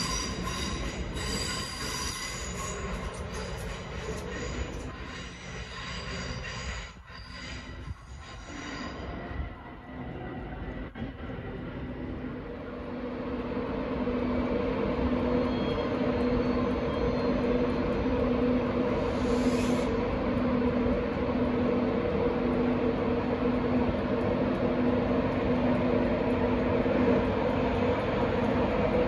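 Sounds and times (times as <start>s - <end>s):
electric locomotive humming: 0.0s - 29.0s
train rumble: 0.0s - 29.0s
short hiss: 19.1s - 20.0s.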